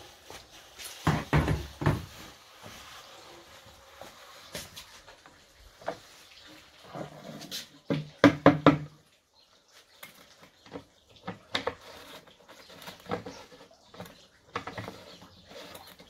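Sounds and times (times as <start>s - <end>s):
plastic pipe knocking on tiled floor: 1.0s - 2.1s, 7.9s - 9.0s.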